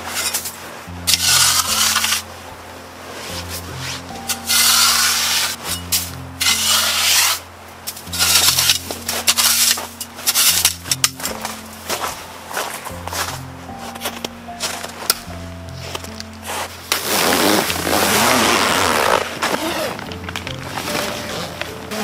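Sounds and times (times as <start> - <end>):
rough scraping strokes: 0.0 - 2.3, 3.1 - 15.2
background music with bass line: 0.0 - 22.0.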